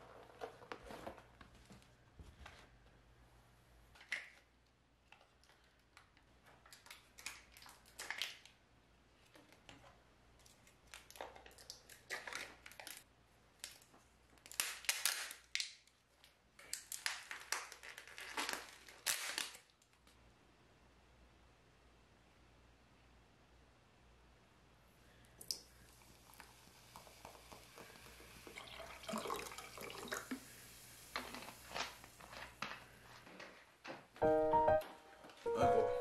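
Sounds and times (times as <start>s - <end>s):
plastic lids peeled crinkling: 10.4s - 13.0s, 16.6s - 19.9s.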